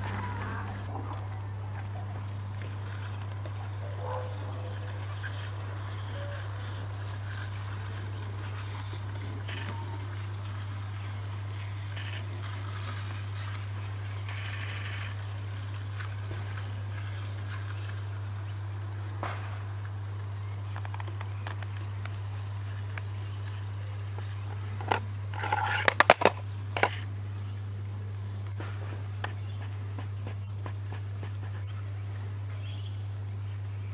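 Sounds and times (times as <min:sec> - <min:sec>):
model train motor hum: 0:02.2 - 0:27.1
light clicks of train: 0:20.7 - 0:23.2.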